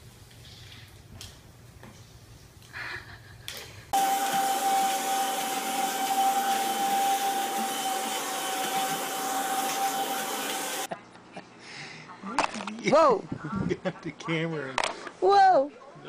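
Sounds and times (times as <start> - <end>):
vacuum cleaner running: 4.0 - 10.9.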